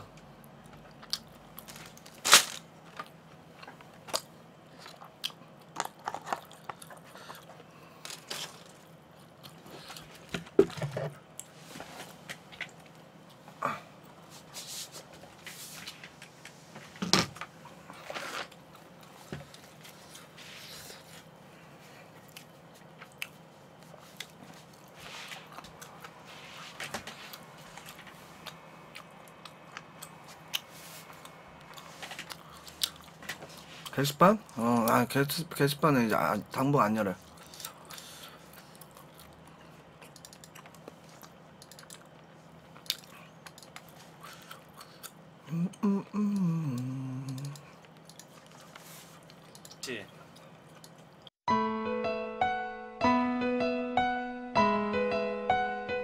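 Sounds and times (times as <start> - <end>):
chewing: 3.6 - 7.7, 27.3 - 33.9, 37.3 - 45.8, 46.4 - 51.3.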